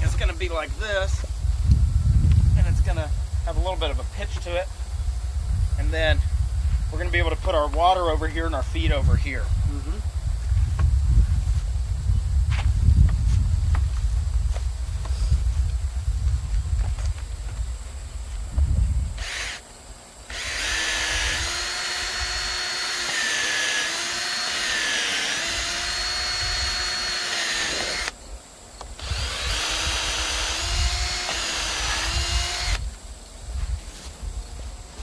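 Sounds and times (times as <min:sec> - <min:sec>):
cordless drill into wood: 0:19.2 - 0:19.6, 0:20.3 - 0:28.2, 0:29.0 - 0:32.8.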